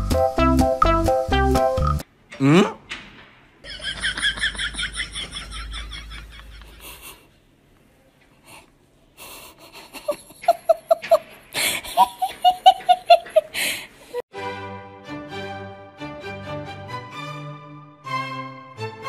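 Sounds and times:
person laughing: 3.6 - 7.3, 9.2 - 13.7.

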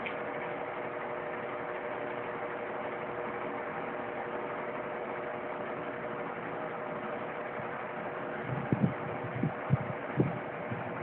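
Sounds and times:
pedestal fan running: 0.0 - 11.0.

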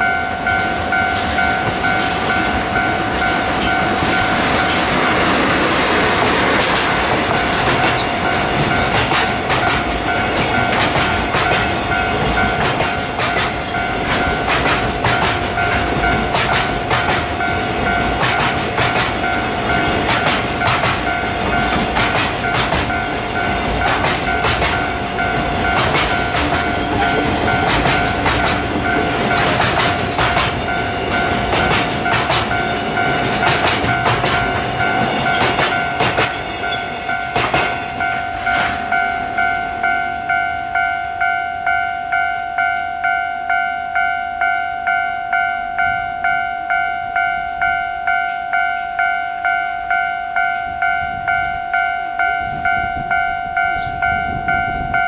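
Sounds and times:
level crossing bell ringing: 0.0 - 5.4, 19.2 - 55.0
locomotive engine: 0.0 - 40.4
train wheels clattering over joints: 1.2 - 38.8.

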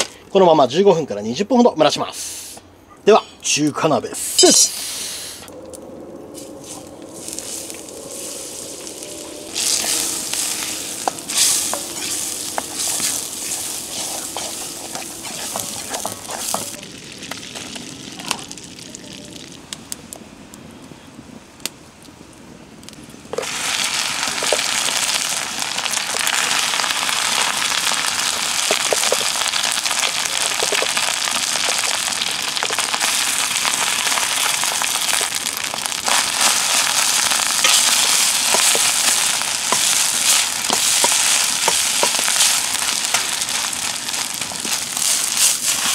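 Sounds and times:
rice frying sizzle: 3.7 - 5.6, 6.3 - 45.9
butter sizzling and popping in a wok: 8.4 - 20.2, 22.8 - 45.9.

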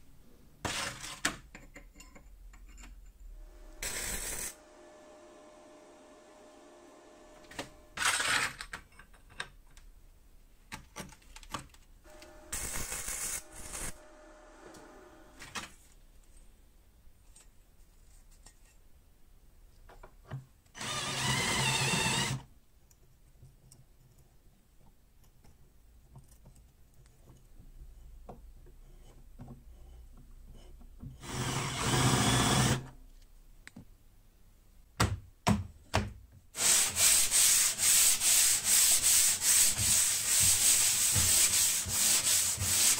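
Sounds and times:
drill cutting into steel: 3.8 - 4.6, 20.8 - 22.4, 31.2 - 32.9
hand sanding strokes: 36.6 - 42.9.

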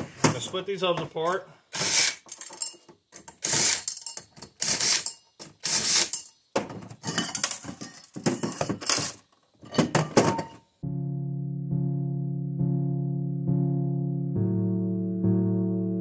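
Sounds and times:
metal bolts clinking: 1.8 - 6.4, 7.0 - 10.6.

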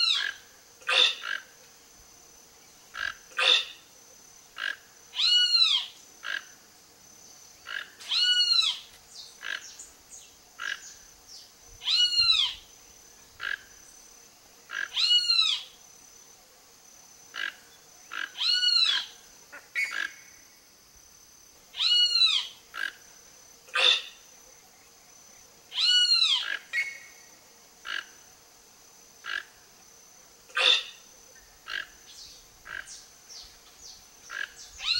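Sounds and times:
toucan croaking call: 0.0 - 1.6, 2.9 - 3.9, 4.6 - 6.5, 7.6 - 9.8, 10.6 - 11.0, 11.8 - 12.6, 13.4 - 13.8, 14.7 - 15.8, 17.3 - 20.3, 21.8 - 23.0, 23.7 - 24.2, 25.7 - 27.1, 27.8 - 28.2, 29.2 - 29.6, 30.5 - 31.0, 31.6 - 33.0, 34.2 - 34.9.

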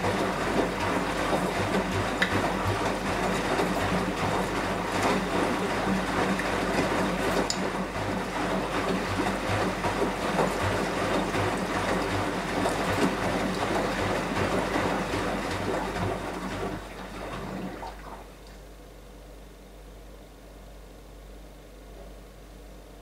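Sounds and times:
washing machine drum tumbling: 0.0 - 18.3
water sloshing: 0.0 - 18.5
low pulsing motor hum: 0.0 - 23.0.

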